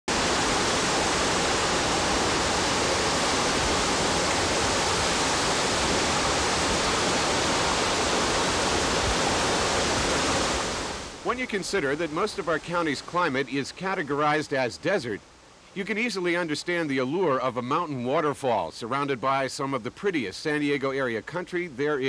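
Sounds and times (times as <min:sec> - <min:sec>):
waterfall rushing: 0:00.1 - 0:14.9.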